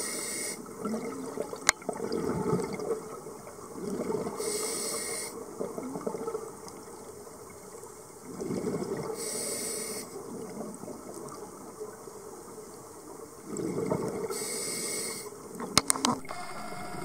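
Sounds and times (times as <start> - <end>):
regulator hissing inhale: 0.0 - 0.6, 4.4 - 5.4, 9.2 - 10.2, 14.3 - 15.4
exhaled bubbles: 8.3 - 9.1, 13.4 - 14.3.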